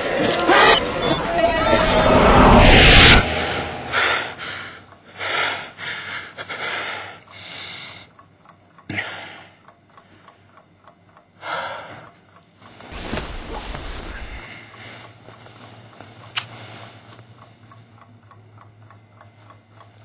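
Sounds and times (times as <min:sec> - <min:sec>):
bedclothes rustling: 0:12.6 - 0:17.3.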